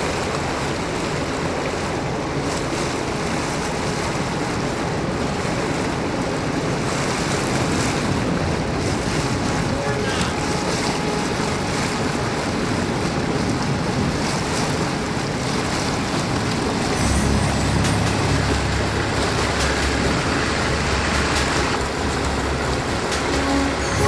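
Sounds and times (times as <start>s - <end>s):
small boat motors running: 0.0s - 14.3s, 14.9s - 24.0s
water rushing past: 0.0s - 24.0s
wind: 0.0s - 24.0s
deep low hum: 16.6s - 24.0s.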